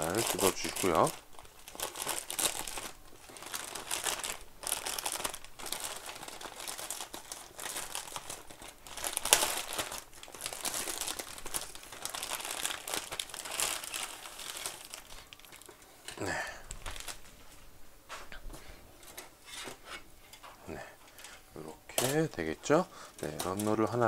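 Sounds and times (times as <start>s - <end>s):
plastic bag crinkling and tearing: 0.0s - 17.3s, 23.2s - 24.0s.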